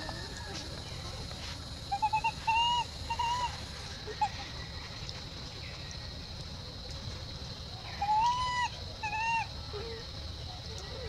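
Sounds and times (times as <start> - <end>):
high whimpering animal calls: 1.9 - 4.6, 7.9 - 10.0.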